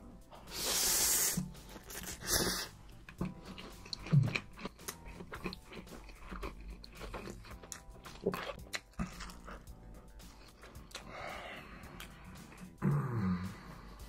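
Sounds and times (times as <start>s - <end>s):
noodles being slurped: 0.5s - 9.7s
wet chewing: 1.6s - 12.8s.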